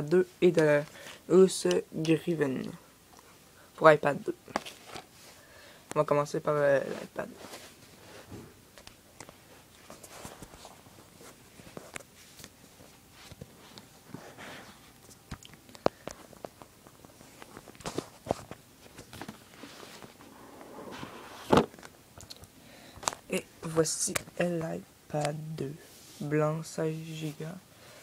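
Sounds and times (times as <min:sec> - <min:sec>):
cardboard and plastic rustling: 0:06.8 - 0:20.3.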